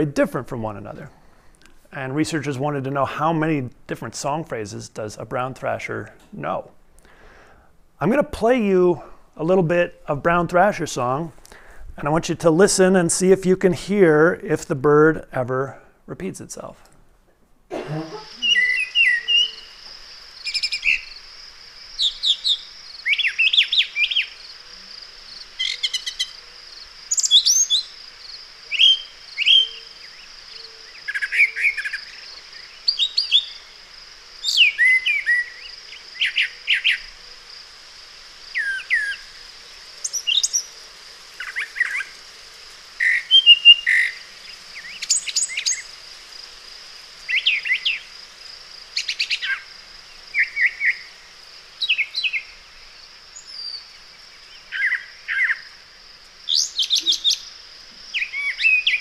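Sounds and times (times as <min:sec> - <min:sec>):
steady high hiss: 0:00.0 - 0:59.0
bird singing varied phrases: 0:18.3 - 0:19.8, 0:20.4 - 0:21.3, 0:21.9 - 0:24.5, 0:25.4 - 0:26.5, 0:27.1 - 0:28.0, 0:28.7 - 0:33.8, 0:34.4 - 0:37.1, 0:38.5 - 0:39.3, 0:40.0 - 0:40.7, 0:43.0 - 0:45.9, 0:49.0 - 0:49.7, 0:50.3 - 0:51.1, 0:51.8 - 0:52.6, 0:53.4 - 0:55.7, 0:56.5 - 0:57.5, 0:58.1 - 0:59.0.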